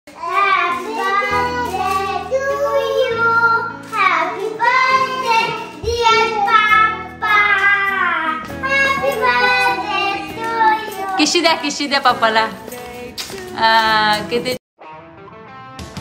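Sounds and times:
child singing: 0.1s - 11.3s
instrumental backing music: 0.1s - 16.0s.

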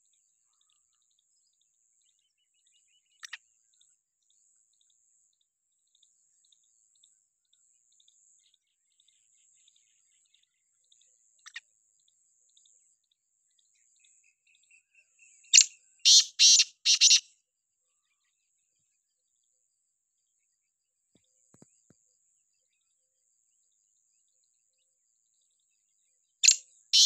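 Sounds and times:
bird harsh rasping call: 15.6s - 17.2s, 26.4s - 27.0s
tiny chirps: 26.4s - 27.0s.

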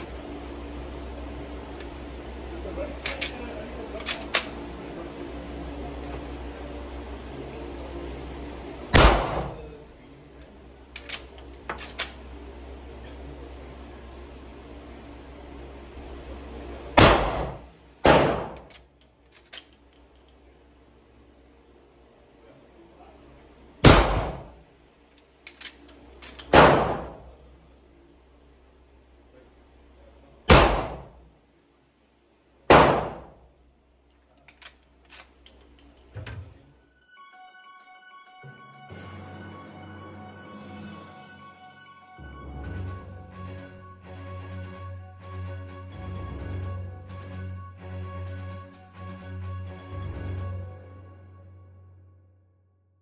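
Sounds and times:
handgun shot echoing indoors: 8.9s - 9.6s, 17.0s - 18.8s, 23.8s - 24.6s, 26.4s - 27.2s, 30.5s - 31.1s, 32.7s - 33.4s.

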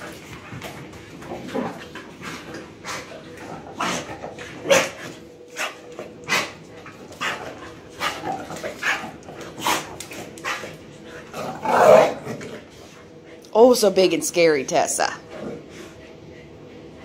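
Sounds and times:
dogs barking and yelping: 2.8s - 12.4s.

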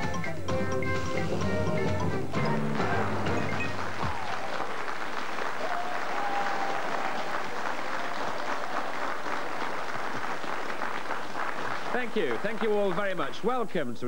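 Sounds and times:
studio audience applauding: 2.7s - 13.5s.

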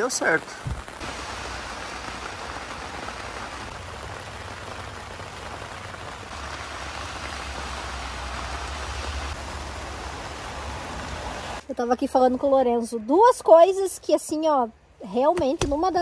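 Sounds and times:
rain on tent fabric: 0.0s - 11.6s.

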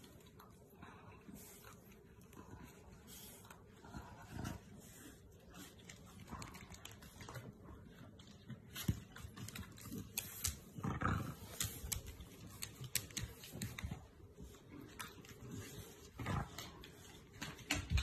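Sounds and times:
dogs growling and grunting: 10.5s - 13.9s, 15.0s - 18.0s.

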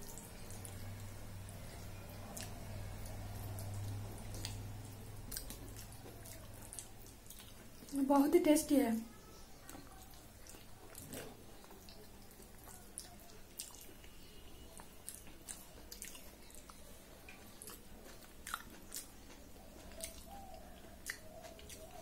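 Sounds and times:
person chewing: 0.0s - 8.0s, 9.6s - 22.0s
lip smacks: 1.8s - 8.0s, 9.6s - 22.0s
wet mouth clicks: 21.0s - 21.9s.

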